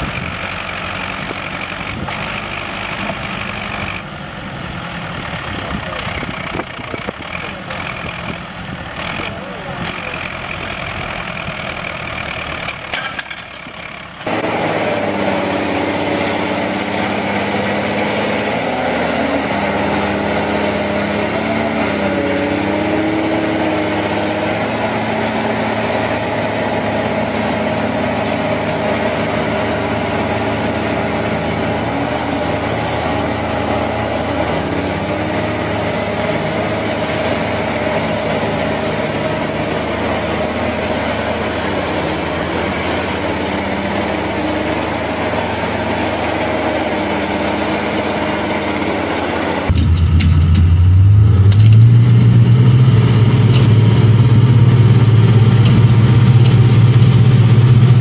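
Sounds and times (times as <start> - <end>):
tractor engine straining: 0.0 - 58.0
high whine: 14.3 - 58.0.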